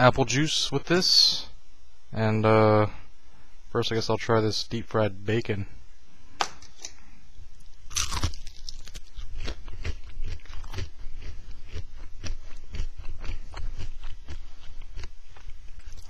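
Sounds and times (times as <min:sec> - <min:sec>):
person crunching bacon: 0:07.6 - 0:16.0.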